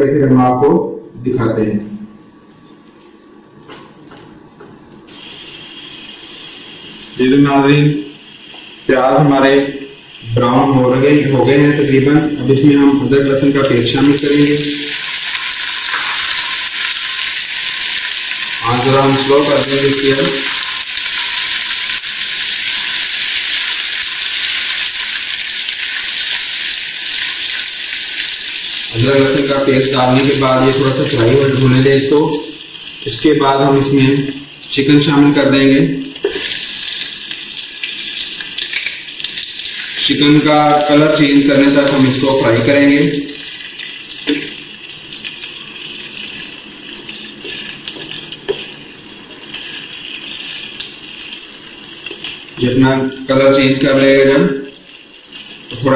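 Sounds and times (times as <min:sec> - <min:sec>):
onions sizzling in hot fat: 0:05.0 - 0:12.7, 0:13.5 - 0:55.9
wooden spatula tapping and scraping: 0:47.4 - 0:48.8.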